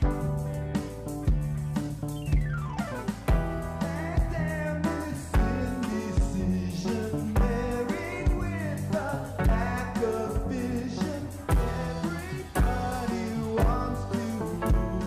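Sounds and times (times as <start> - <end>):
live rock band playing: 0.0 - 15.0
person singing: 3.6 - 15.0.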